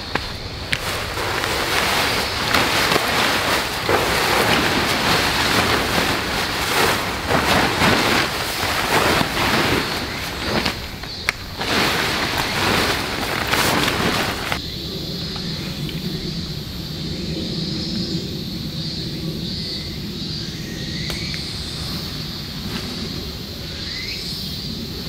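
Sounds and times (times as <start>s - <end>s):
tent fabric rustling and crinkling: 0.0s - 14.6s.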